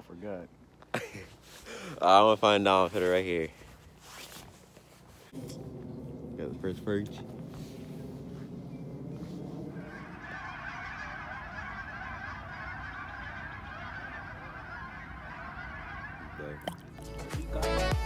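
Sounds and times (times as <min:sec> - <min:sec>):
geese honking: 0:05.4 - 0:18.0
background music: 0:16.9 - 0:18.0.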